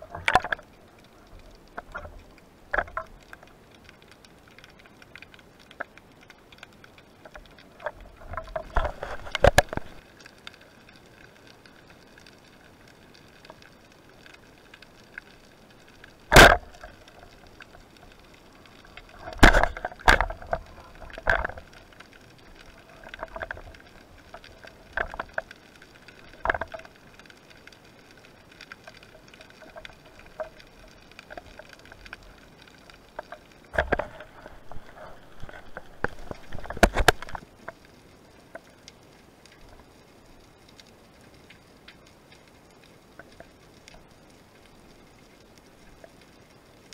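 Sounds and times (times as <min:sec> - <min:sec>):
underwater knocks and clicks: 0:00.0 - 0:00.7, 0:01.4 - 0:04.0, 0:07.2 - 0:10.5, 0:16.1 - 0:37.8.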